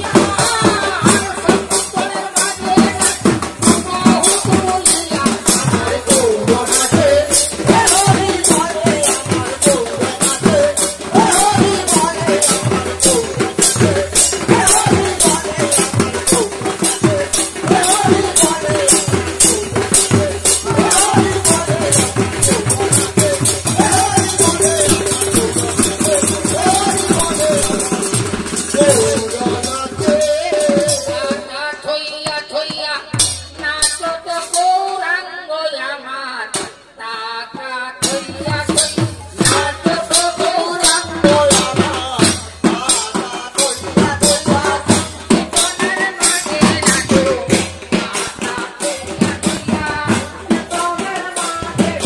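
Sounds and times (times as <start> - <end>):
barrel drums beating: 0.0 - 31.0.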